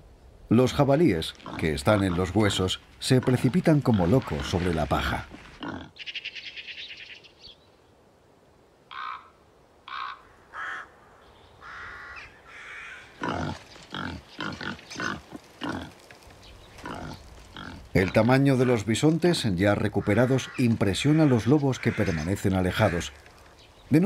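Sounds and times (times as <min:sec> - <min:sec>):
wild boars grunting and squealing: 0:01.3 - 0:06.0, 0:11.7 - 0:16.1, 0:16.8 - 0:23.5.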